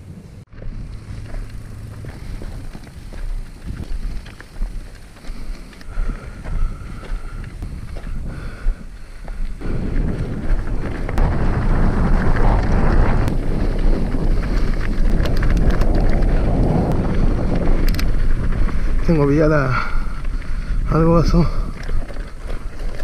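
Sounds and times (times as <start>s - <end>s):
wind buffeting microphone: 0.0s - 23.0s
mountain bike rolling over rocks: 0.5s - 23.0s
clicks and rattles: 14.5s - 16.3s, 17.8s - 18.1s.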